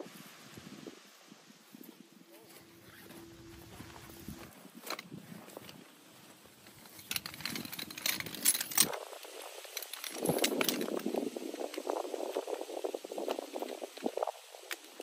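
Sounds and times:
metal tripod legs clicking and rattling: 6.6 - 15.0.

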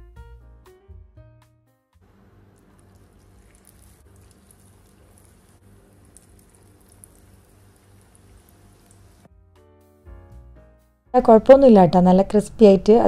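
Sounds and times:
low steady hum: 2.0 - 9.3
food sizzling in hot oil: 3.0 - 9.3.

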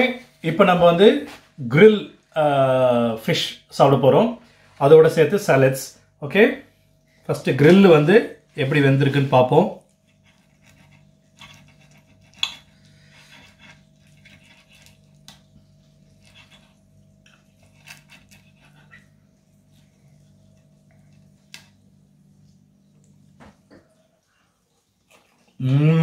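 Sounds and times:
faint steady hum: 0.0 - 26.0
cutlery scraping a plate: 10.1 - 15.0.

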